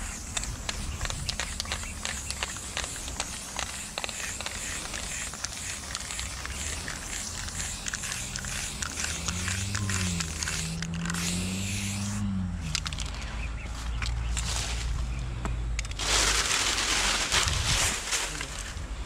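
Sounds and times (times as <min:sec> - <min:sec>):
spray-paint can hissing: 0:00.0 - 0:13.1
low wavering hum: 0:06.0 - 0:19.0.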